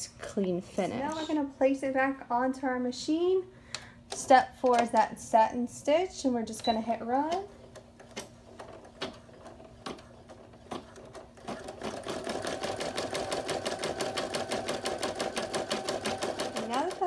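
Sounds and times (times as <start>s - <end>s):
embroidery machine sewing: 8.5s - 17.0s.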